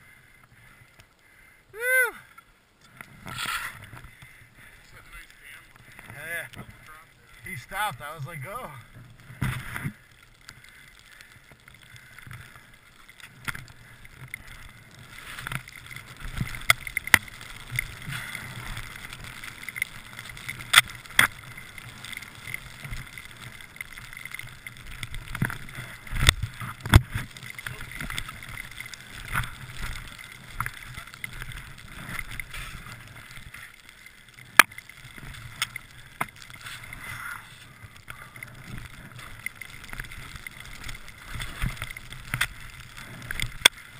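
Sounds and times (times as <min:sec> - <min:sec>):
skis swishing through snow: 0:03.1 - 0:04.0, 0:12.4 - 0:43.9.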